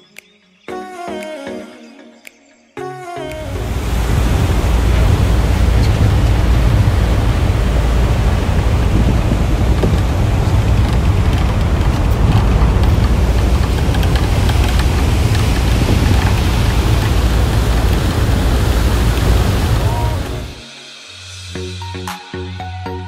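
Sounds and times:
wind on microphone: 0:03.5 - 0:20.6.

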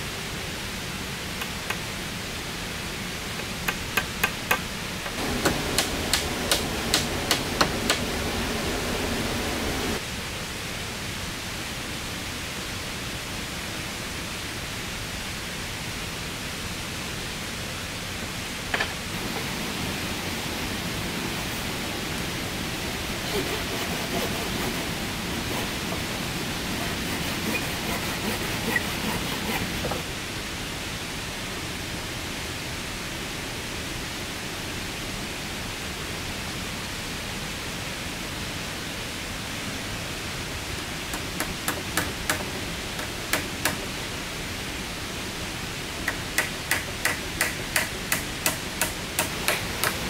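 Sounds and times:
steady rushing noise: 0:00.0 - 0:12.1, 0:16.9 - 0:50.0
sharp knocks: 0:03.4 - 0:08.2, 0:41.1 - 0:43.8, 0:46.1 - 0:50.0.

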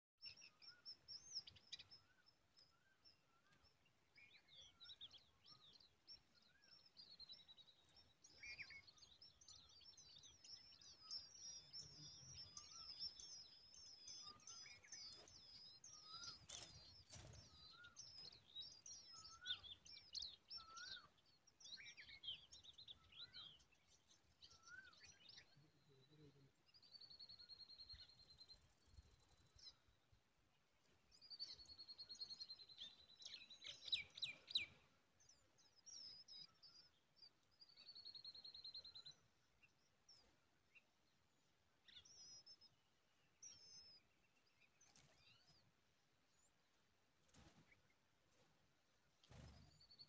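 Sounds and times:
nestlings chirping: 0:11.0 - 0:20.2.

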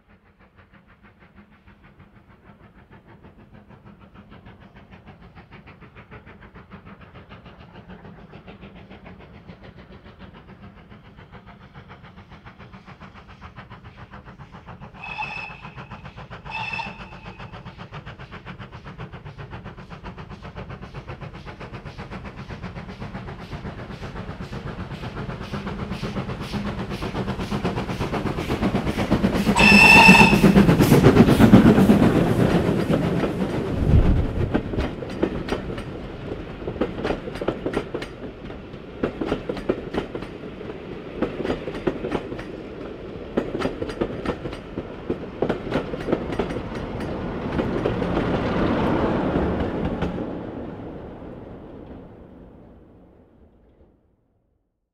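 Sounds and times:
steam locomotive exhaust beats: 0:00.0 - 0:53.4
train whistle toots: 0:15.0 - 0:17.6, 0:29.5 - 0:31.1.

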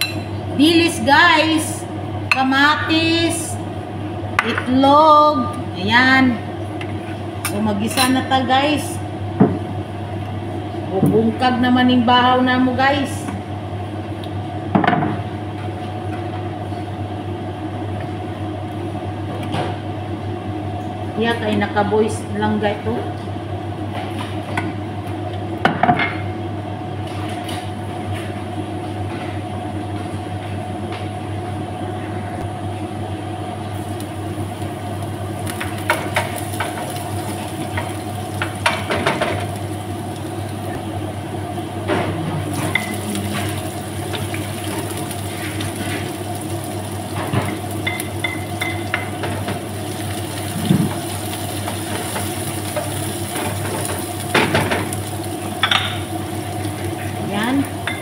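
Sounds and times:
steady low hum: 0:00.0 - 0:58.0
garlic and onion sizzling in oil: 0:33.6 - 0:58.0.

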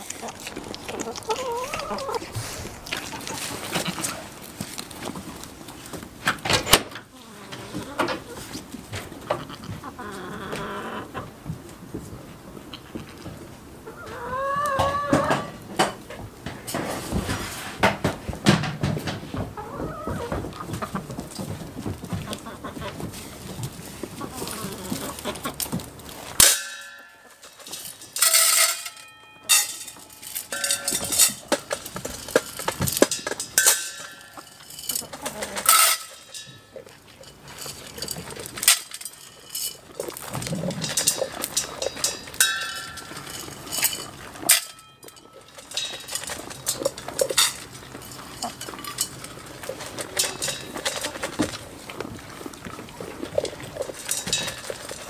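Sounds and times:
chickens clucking: 0:00.0 - 0:28.3, 0:29.1 - 0:55.0
metallic clinks and knocks: 0:26.4 - 0:51.6, 0:53.8 - 0:55.0.

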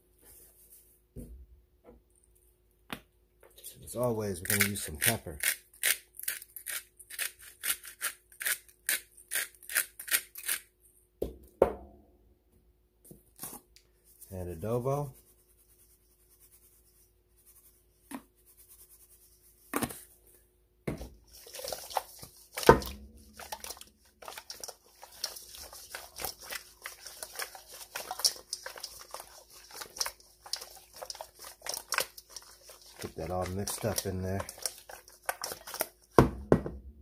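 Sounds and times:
knocks against metal bowl: 0:11.2 - 0:12.0
raw meat slapping and squishing: 0:20.9 - 0:36.2.

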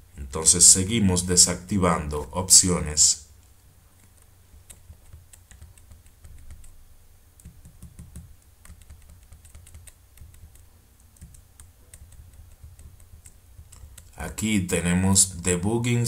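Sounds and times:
low steady hum: 0:00.0 - 0:16.0
computer keyboard keys clicking: 0:04.0 - 0:06.8, 0:07.4 - 0:14.2.

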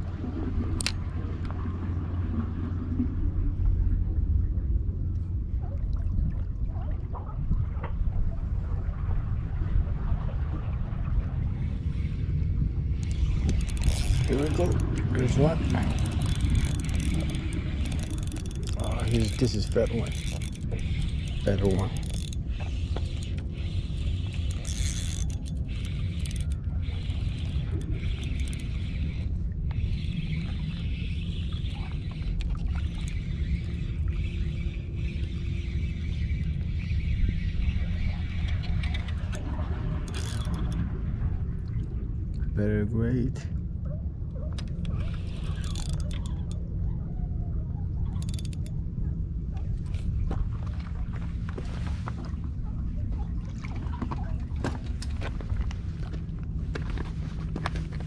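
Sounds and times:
wind rumble on microphone: 0:00.0 - 0:58.0
fishing reel cranking: 0:13.0 - 0:39.4, 0:40.0 - 0:40.8, 0:44.6 - 0:46.6, 0:48.1 - 0:48.8.

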